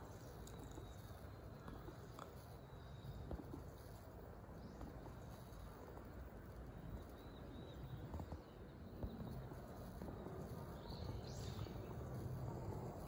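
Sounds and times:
steady low rumble: 2.7 - 13.0.

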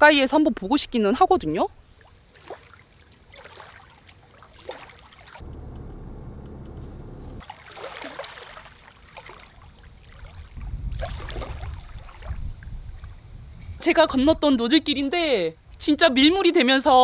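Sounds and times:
small waves lapping: 1.9 - 5.5, 6.4 - 13.2
low rumble: 5.4 - 7.4.

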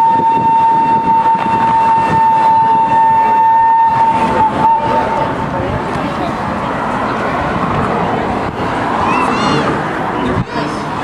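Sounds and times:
train whistle blowing: 0.0 - 5.4.

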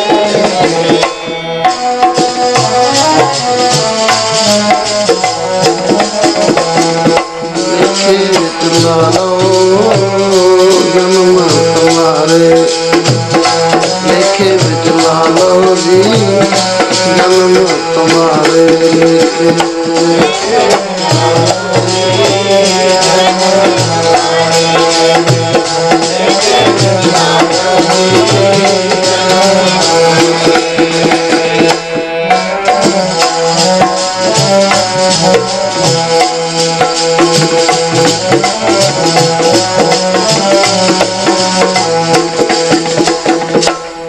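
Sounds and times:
tabla playing: 0.0 - 44.0.

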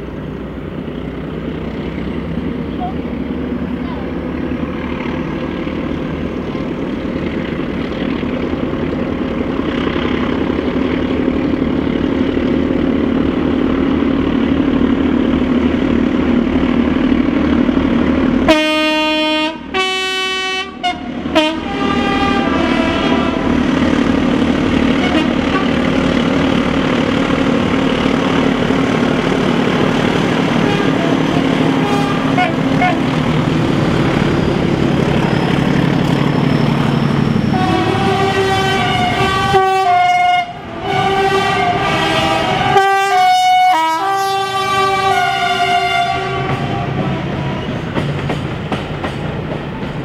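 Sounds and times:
diesel locomotive engine drone: 0.0 - 50.0
two-tone locomotive horn: 18.4 - 23.7, 24.9 - 25.9, 30.4 - 33.1, 35.5 - 47.8.

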